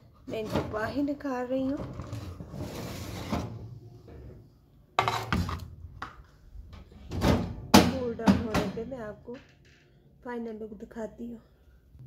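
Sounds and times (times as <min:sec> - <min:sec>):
baking tray sliding scrape: 0:02.0 - 0:03.6.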